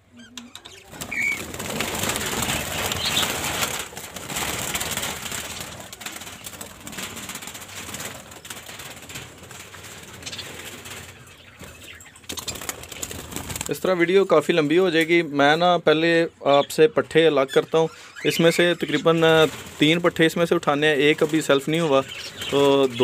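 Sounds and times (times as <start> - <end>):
birds flapping wings: 0.6 - 14.0, 18.3 - 23.0.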